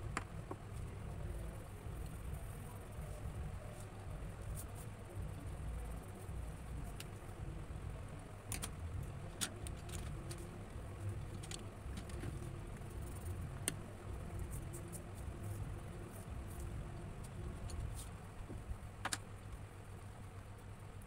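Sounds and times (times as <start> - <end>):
pencils scratching on paper: 3.0 - 5.1, 14.2 - 18.2
low rumble: 5.2 - 18.9
pencils clicking on table: 8.5 - 10.5, 11.3 - 12.4.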